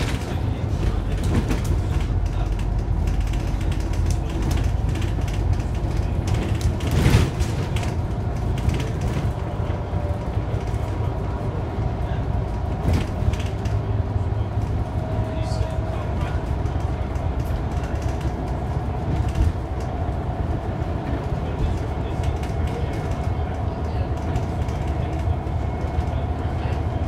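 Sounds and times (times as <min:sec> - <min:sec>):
loud clatter: 0:00.0 - 0:08.0
interior panels rattling and creaking: 0:00.0 - 0:11.5
bus engine and road rumble: 0:00.0 - 0:27.0.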